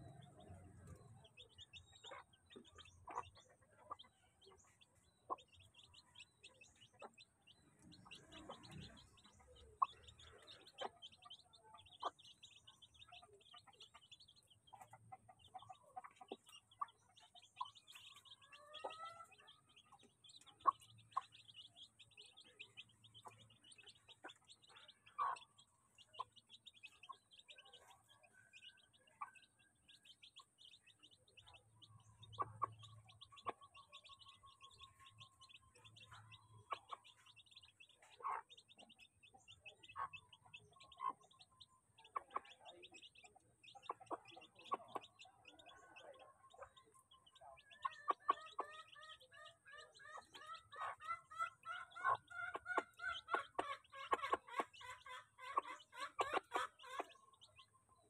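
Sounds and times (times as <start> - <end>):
chicks peeping: 0.0 - 58.0.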